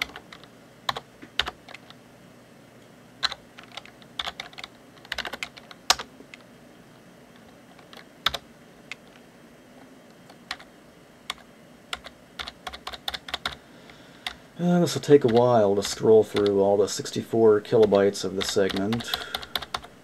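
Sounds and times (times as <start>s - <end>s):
computer keyboard typing: 0.0s - 2.0s, 3.2s - 6.4s, 7.3s - 9.2s, 10.3s - 10.7s, 11.3s - 13.6s, 15.0s - 16.6s, 17.7s - 20.0s.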